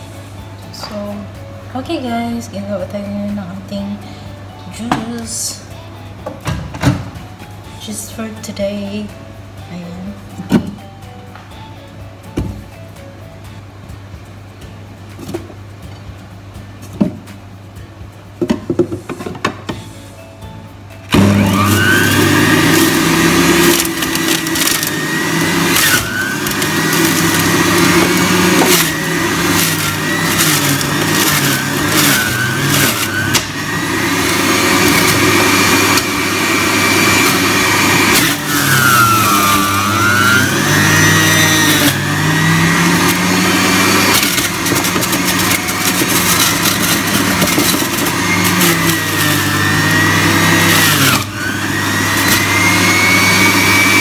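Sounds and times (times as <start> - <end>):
juicer motor whining: 21.0 - 54.0.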